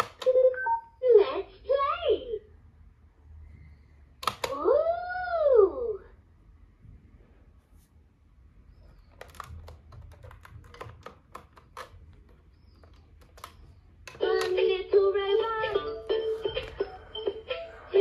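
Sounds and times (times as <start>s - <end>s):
synthesized singing voice: 14.2s - 16.0s.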